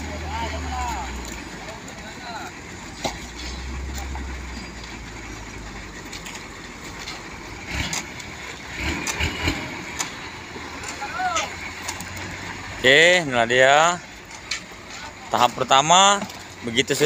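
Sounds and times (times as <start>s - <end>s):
engine humming: 0.0s - 17.0s
rakes scraping wet concrete: 6.0s - 17.0s.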